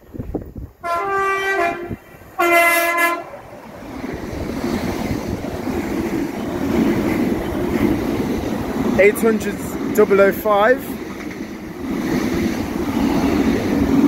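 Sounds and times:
train wheels rumbling on rail: 0:00.0 - 0:14.0
train horn blasts: 0:00.8 - 0:03.3.

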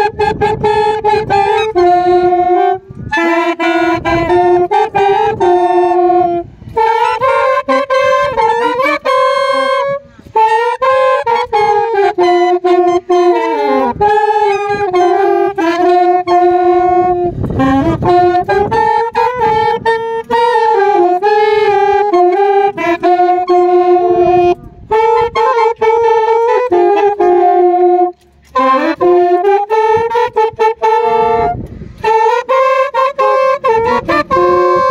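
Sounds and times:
saxophones and clarinet melody: 0:00.0 - 0:34.9.

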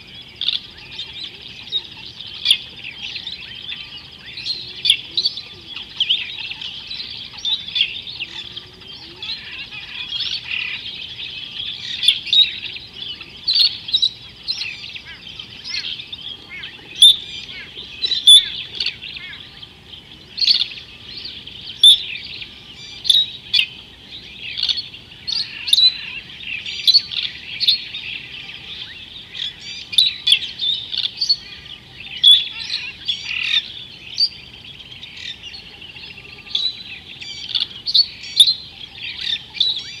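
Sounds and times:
birds chirping and calling: 0:00.0 - 0:40.0.

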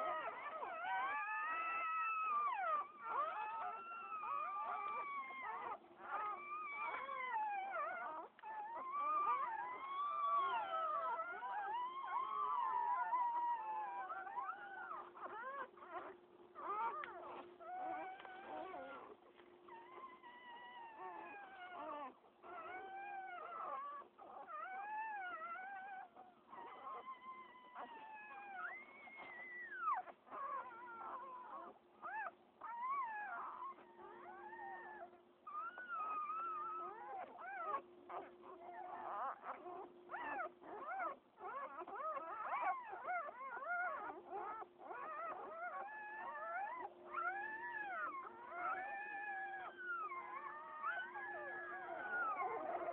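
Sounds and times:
puppies squealing and whimpering: 0:00.0 - 0:52.9.

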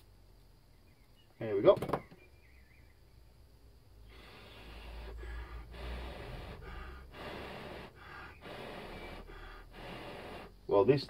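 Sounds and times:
person blowing short puffs: 0:04.0 - 0:10.7.

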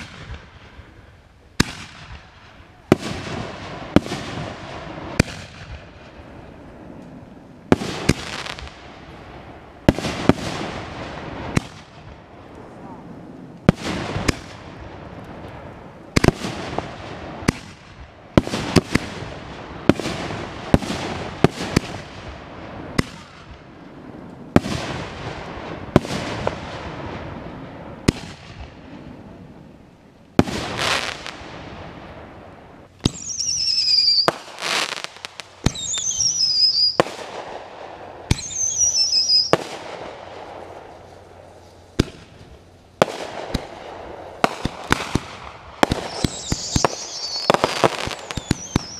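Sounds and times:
falling firework whistles: 0:33.0 - 0:37.4, 0:38.3 - 0:39.9, 0:44.4 - 0:48.9
firework shells bursting: 0:41.9 - 0:48.9.

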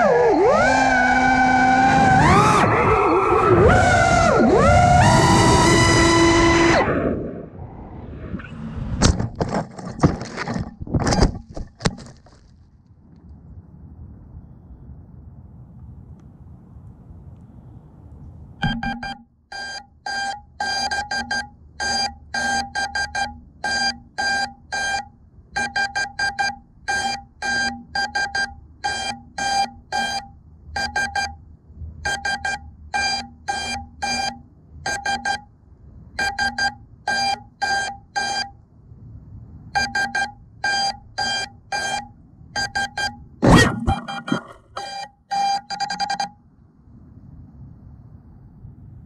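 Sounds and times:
high-pitched buzzer beeps: 0:18.6 - 0:31.4, 0:32.0 - 0:35.5, 0:36.2 - 0:38.6, 0:39.8 - 0:46.4.

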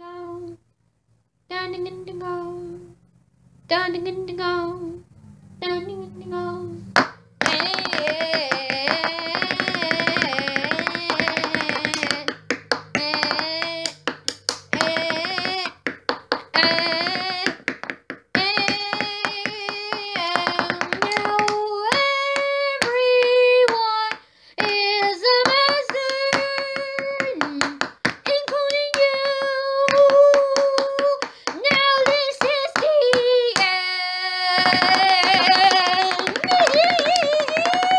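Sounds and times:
high voice singing wordless tune: 0:00.0 - 0:00.6, 0:01.5 - 0:03.0, 0:03.7 - 0:37.9
fast repeated clicks or claps: 0:07.0 - 0:33.7, 0:34.6 - 0:37.9.

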